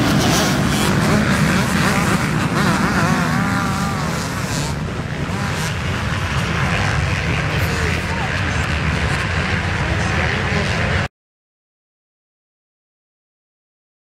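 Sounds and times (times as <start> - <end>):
motocross bikes racing past: 0.0 - 11.1.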